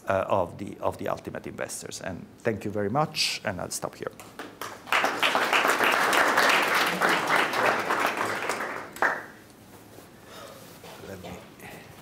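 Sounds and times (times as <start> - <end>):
audience applauding: 4.4 - 9.4.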